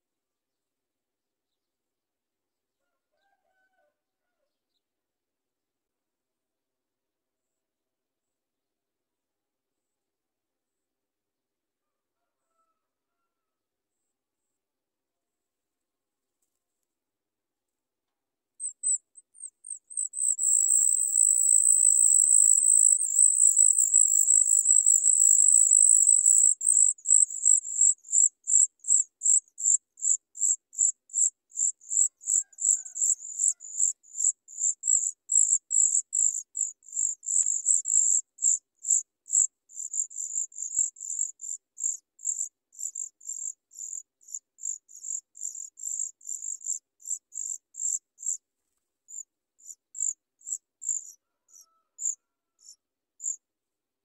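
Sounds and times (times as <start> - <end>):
nestlings high-pitched begging calls: 20.0 - 28.6.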